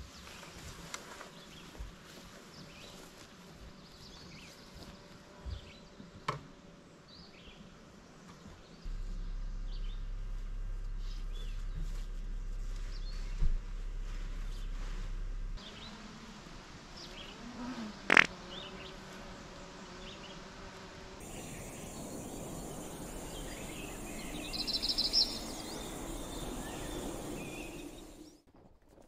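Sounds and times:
low hum: 8.8s - 17.1s, 21.2s - 28.3s
insects buzzing: 15.6s - 28.4s.

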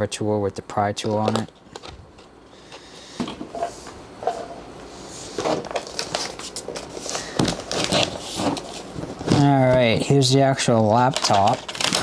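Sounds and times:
cardboard packaging handled: 5.4s - 10.1s, 10.9s - 12.0s
wrapping paper rustling: 5.4s - 12.0s.

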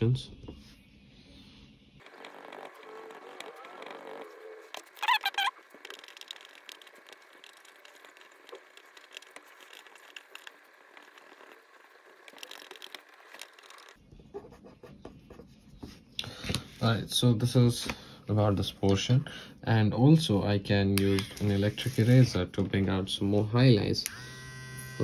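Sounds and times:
drawing tools scratching paper: 2.0s - 16.1s, 21.4s - 22.4s.

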